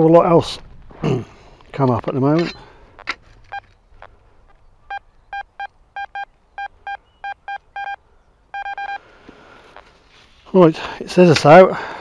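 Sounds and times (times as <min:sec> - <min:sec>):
metal detector beeps: 0:04.9 - 0:08.0, 0:08.6 - 0:09.0.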